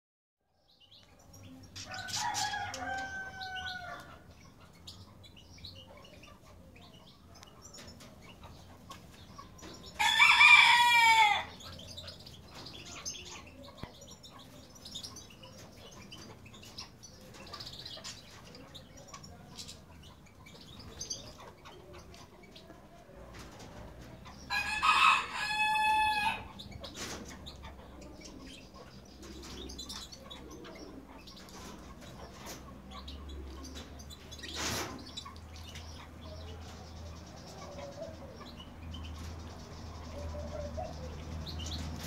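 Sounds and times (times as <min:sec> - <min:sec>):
rooster crowing: 0:01.9 - 0:04.2, 0:10.0 - 0:11.5, 0:24.5 - 0:26.5.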